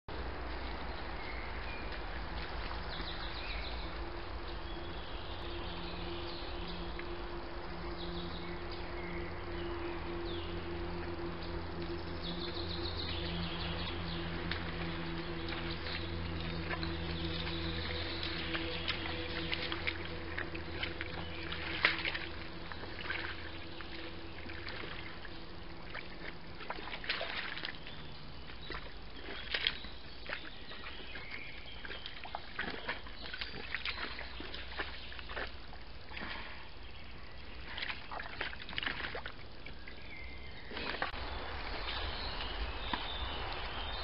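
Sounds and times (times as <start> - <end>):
mud sloshing and squelching: 11.9 - 36.7, 37.5 - 44.0.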